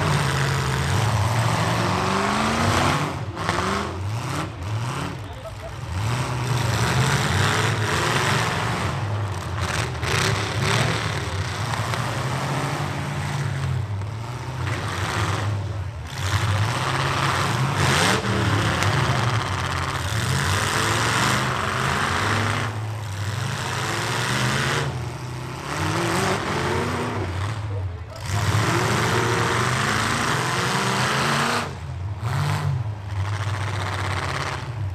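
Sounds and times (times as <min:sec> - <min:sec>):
truck engines revving: 0:00.0 - 0:34.9.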